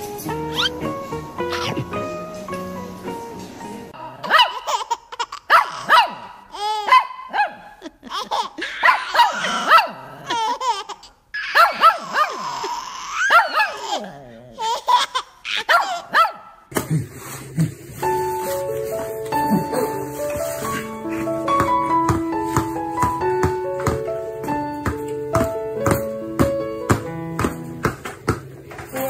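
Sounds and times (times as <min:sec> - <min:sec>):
baby giggling and squealing: 0:00.5 - 0:02.0, 0:04.5 - 0:07.0, 0:07.7 - 0:16.1
small dog yapping: 0:08.6 - 0:10.4, 0:11.4 - 0:14.3.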